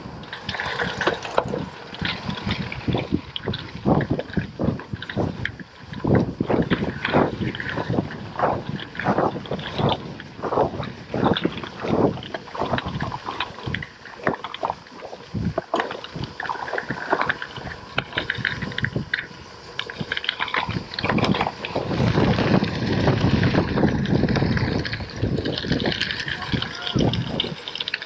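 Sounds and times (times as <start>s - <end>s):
bike tyres crunching over gravel: 0.0s - 28.0s
wind buffeting microphone: 0.0s - 28.0s.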